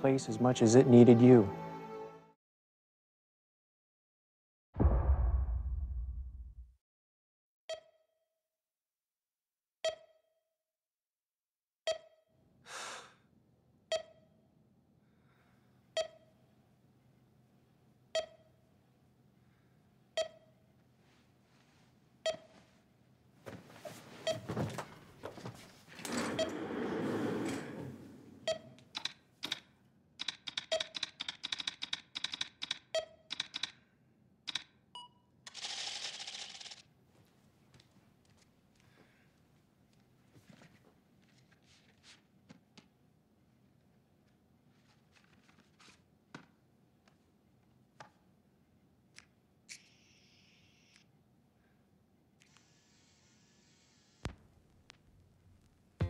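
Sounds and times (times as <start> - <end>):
typing on a keyboard: 28.9 - 33.8, 34.5 - 34.7.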